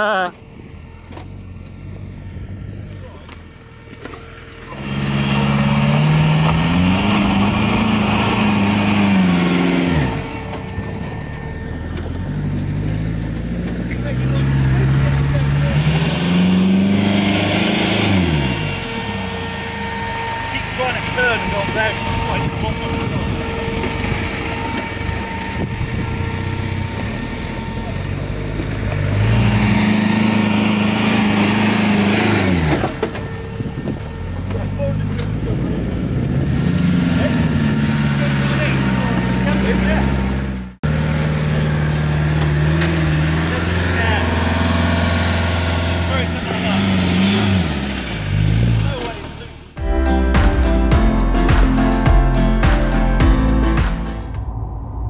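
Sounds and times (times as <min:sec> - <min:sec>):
buggy engine revving: 0:00.0 - 0:49.9.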